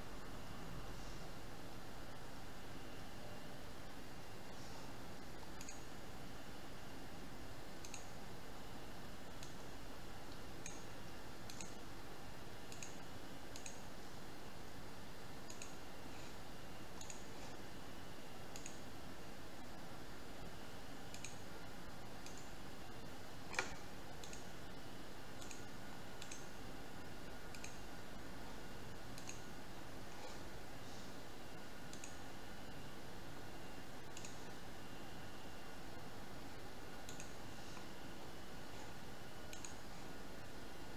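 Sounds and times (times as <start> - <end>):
computer mouse clicking: 5.3 - 6.0, 7.8 - 8.2, 9.3 - 9.7, 10.3 - 11.8, 12.7 - 14.0, 15.4 - 15.8, 16.9 - 17.6, 18.5 - 18.9, 21.1 - 21.5, 22.1 - 22.6, 23.5 - 24.8, 25.4 - 26.6, 27.5 - 27.9, 29.1 - 29.6, 31.9 - 32.3, 34.0 - 34.6, 37.0 - 37.9, 38.8 - 39.9.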